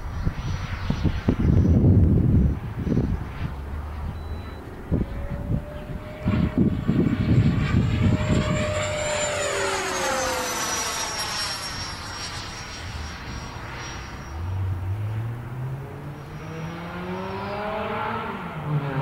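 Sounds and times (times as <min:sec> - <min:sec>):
wind buffeting microphone: 0:00.0 - 0:13.7
model jet fan whine passing: 0:00.0 - 0:19.0.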